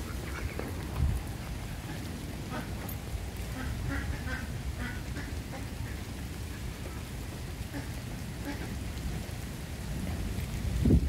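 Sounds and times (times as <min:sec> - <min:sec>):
rain: 0:00.0 - 0:11.0.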